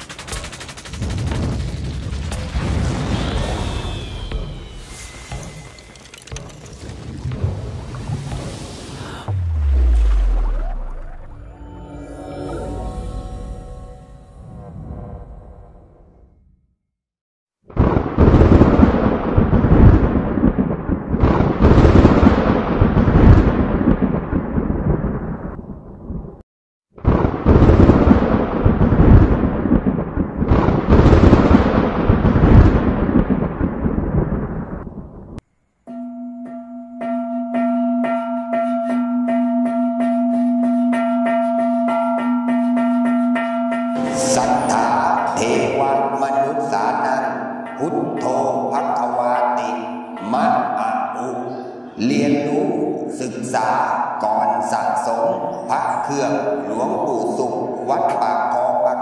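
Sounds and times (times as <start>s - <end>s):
thunder-like rumble: 0.0s - 4.9s, 27.0s - 35.4s
thunder crack and rumble: 0.0s - 5.5s, 6.3s - 11.4s, 17.7s - 26.4s, 27.0s - 35.4s
pulsing bell-like ringing tone: 9.7s - 14.9s, 35.9s - 49.0s.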